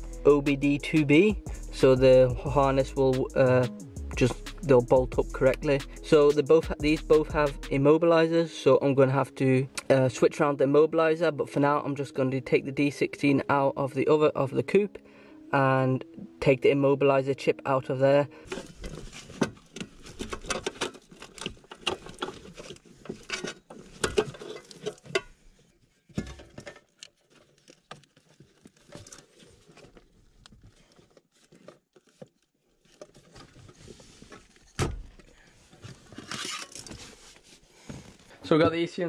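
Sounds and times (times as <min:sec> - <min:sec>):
clicks and rattles of hand work: 0:18.5 - 0:25.4, 0:26.1 - 0:34.7, 0:35.7 - 0:37.2.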